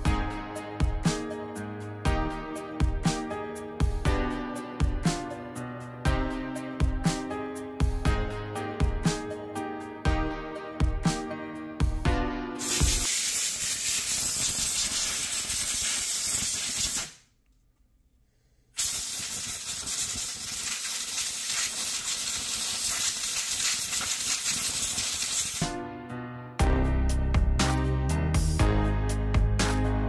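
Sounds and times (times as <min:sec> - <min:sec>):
background music: 0:00.0 - 0:13.1, 0:25.1 - 0:30.0
aerosol spray can hissing: 0:12.6 - 0:17.2, 0:18.8 - 0:25.6.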